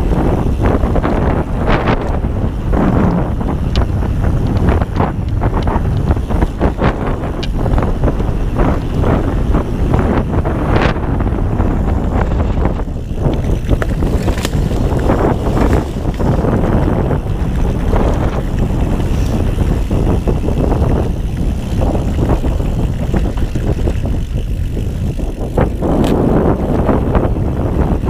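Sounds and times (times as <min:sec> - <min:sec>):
bike rattling and knocking: 0:00.0 - 0:28.0
bike tyres on dirt trail: 0:00.0 - 0:28.0
wind buffeting microphone: 0:00.0 - 0:28.0.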